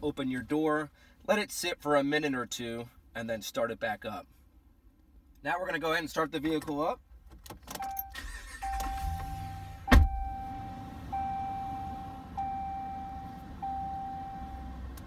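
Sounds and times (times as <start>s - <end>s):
dashboard warning chime: 7.8s - 14.9s
truck engine cranking and starting: 7.9s - 10.5s.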